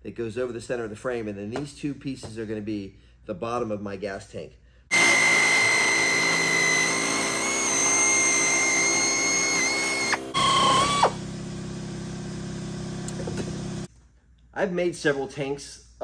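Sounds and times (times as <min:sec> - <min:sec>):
power tool motor whining: 0:04.9 - 0:13.9
second motor winding down: 0:04.9 - 0:13.9.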